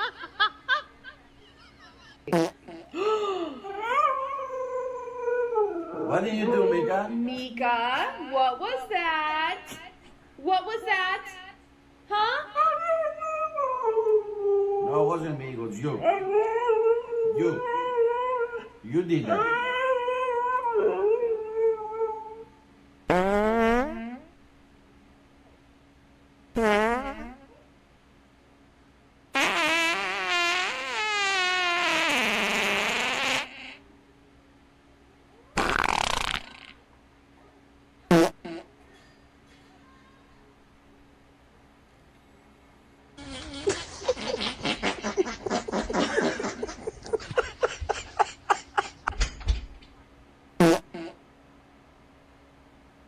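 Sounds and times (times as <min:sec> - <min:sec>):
person laughing hard: 0:00.0 - 0:03.6, 0:43.2 - 0:49.4
buzzing fart sounds: 0:02.2 - 0:03.0, 0:23.1 - 0:24.4, 0:26.5 - 0:27.7, 0:29.3 - 0:33.8, 0:35.5 - 0:36.8, 0:38.1 - 0:38.8, 0:43.2 - 0:48.3, 0:50.6 - 0:51.2
dog howling: 0:03.6 - 0:07.2, 0:12.6 - 0:15.1, 0:16.0 - 0:18.7, 0:19.3 - 0:22.6.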